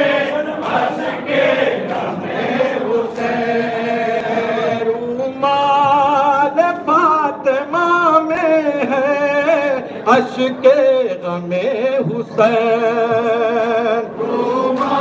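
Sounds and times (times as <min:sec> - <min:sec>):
men chanting in chorus: 0:00.0 - 0:07.4.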